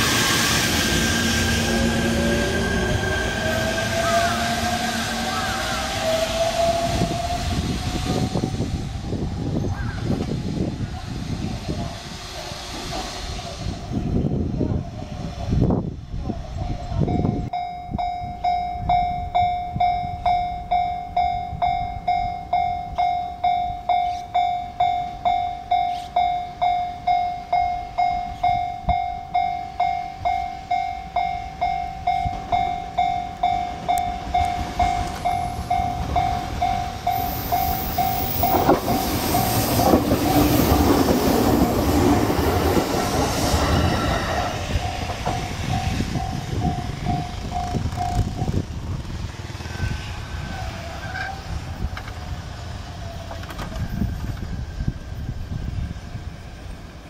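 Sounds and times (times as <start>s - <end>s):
electric train passing over rails: 0.0s - 57.0s
level crossing warning bell: 16.9s - 40.4s, 44.4s - 48.6s.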